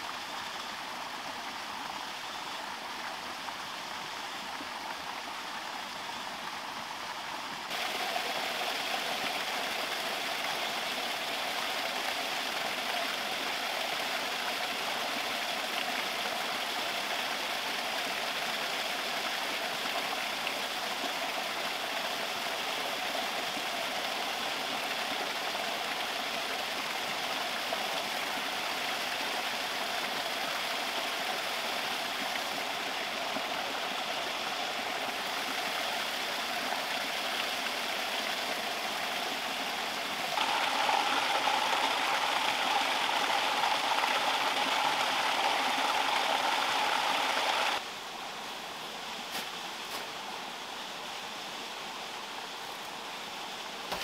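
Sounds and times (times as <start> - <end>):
water pouring from drain outlet: 40.4 - 47.8.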